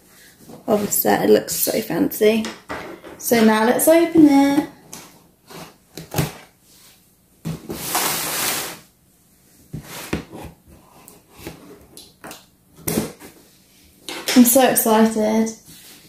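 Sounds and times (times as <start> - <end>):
box sliding and scraping: 7.6 - 8.9, 9.8 - 10.6.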